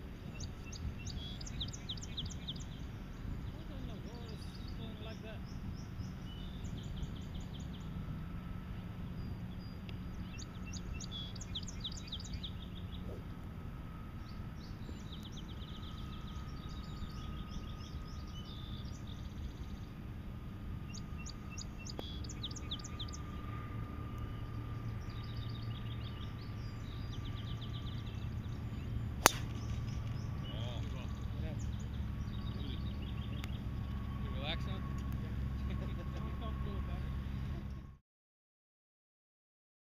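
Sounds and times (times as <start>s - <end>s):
low background rumble: 0.0s - 38.0s
songbird trilling: 0.3s - 7.9s, 9.2s - 13.2s, 20.9s - 23.3s.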